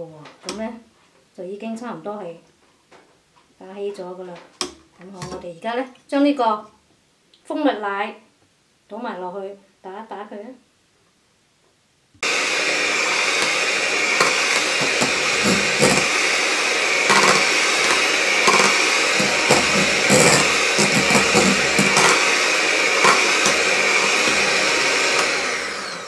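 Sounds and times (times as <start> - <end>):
electric hand mixer running: 12.2 - 26.0
beaters knocking bowl: 14.2 - 16.2, 17.0 - 25.4.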